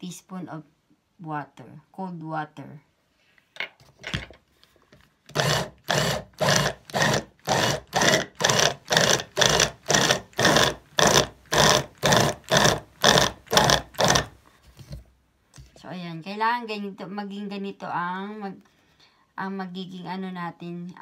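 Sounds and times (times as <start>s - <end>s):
hand blender pulsing: 5.3s - 14.4s.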